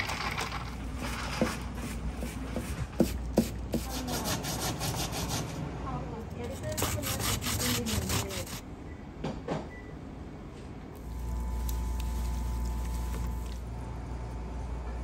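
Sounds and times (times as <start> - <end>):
radish rasped on grater: 6.4 - 8.6
low machine hum with whine: 8.5 - 15.0.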